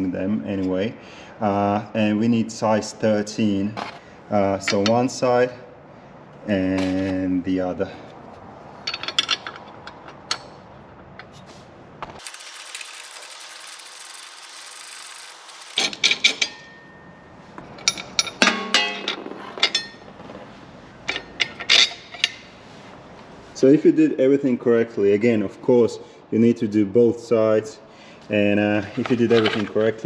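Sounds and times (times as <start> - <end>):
steady hiss: 12.0 - 16.0
ratchet clicking: 12.2 - 15.9.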